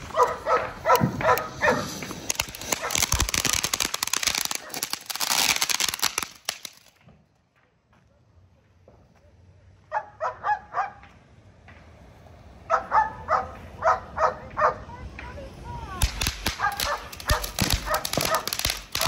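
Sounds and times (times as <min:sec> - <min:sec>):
firework fountain crackling: 0:00.0 - 0:07.1, 0:15.0 - 0:19.0
dog barking: 0:00.1 - 0:02.0, 0:02.8 - 0:03.0, 0:09.9 - 0:11.1, 0:12.7 - 0:14.8, 0:16.6 - 0:18.6.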